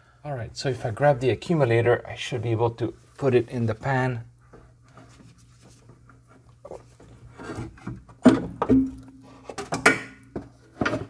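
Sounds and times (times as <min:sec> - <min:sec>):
faint rubbing and handling: 0:02.8 - 0:07.9
sharp knocks: 0:08.2 - 0:09.0
metal knocks with ringing tone: 0:08.6 - 0:09.1.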